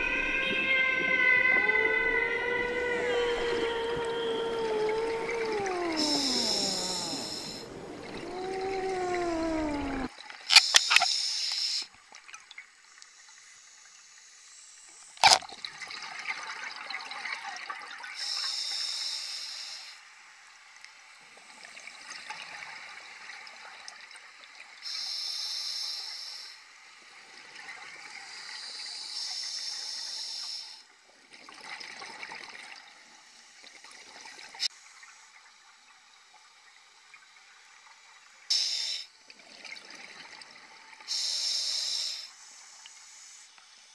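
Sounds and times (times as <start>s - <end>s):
hissing regulator inhalations: 2.4s - 11.8s, 41.1s - 42.4s
bubbling exhalations: 2.8s - 10.1s.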